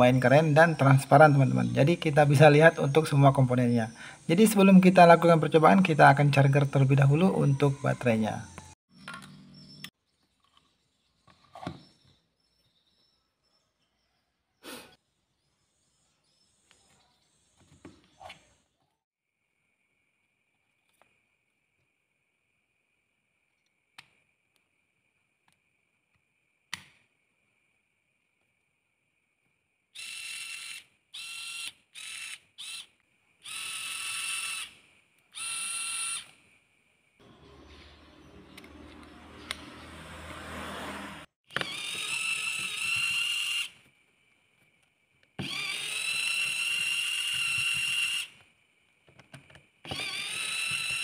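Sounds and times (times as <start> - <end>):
small motor gear whine: 5.6 - 9.9, 37.2 - 43.8, 45.4 - 48.3, 49.9 - 51.0.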